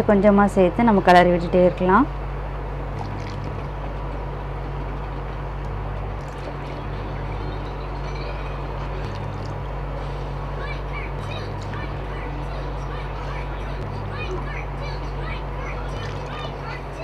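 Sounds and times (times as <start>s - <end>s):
induction cooktop humming: 0.0s - 17.0s.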